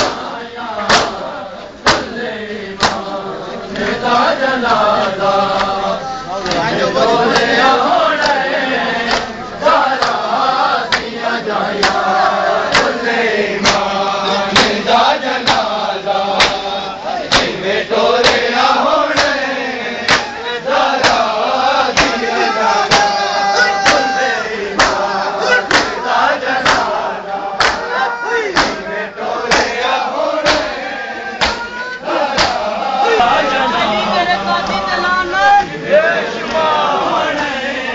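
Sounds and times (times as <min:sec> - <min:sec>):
men chanting a lament: 0:00.0 - 0:37.9
hands slapping chests: 0:00.9 - 0:01.2, 0:01.8 - 0:02.2, 0:02.8 - 0:03.0, 0:09.0 - 0:09.3, 0:10.0 - 0:10.2, 0:10.9 - 0:11.1, 0:12.7 - 0:13.0, 0:16.4 - 0:16.6, 0:17.3 - 0:17.6, 0:18.2 - 0:18.5, 0:19.2 - 0:19.4, 0:20.1 - 0:20.3, 0:22.0 - 0:22.2, 0:24.8 - 0:25.0, 0:25.6 - 0:26.0, 0:26.6 - 0:27.0, 0:27.6 - 0:27.9, 0:28.6 - 0:28.8, 0:29.5 - 0:29.8, 0:30.4 - 0:30.8, 0:31.4 - 0:31.7, 0:32.3 - 0:32.6.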